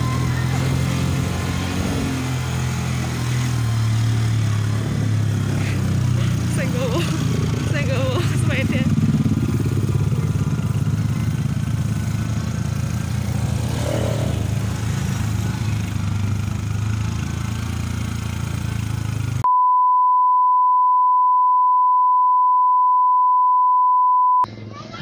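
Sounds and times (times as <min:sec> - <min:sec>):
motorcycle engine running: 0:00.0 - 0:19.4
road and wind noise: 0:00.0 - 0:19.4.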